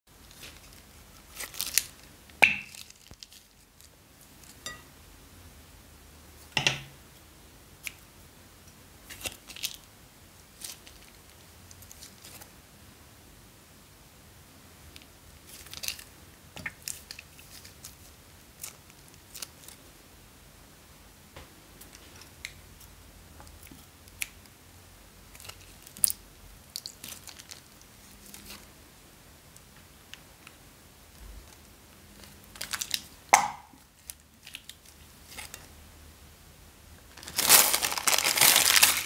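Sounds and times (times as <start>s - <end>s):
plastic crinkling: 0.2s - 4.8s, 9.1s - 9.9s, 10.6s - 12.5s, 15.4s - 19.8s, 25.3s - 28.7s, 32.2s - 35.7s, 37.1s - 39.0s.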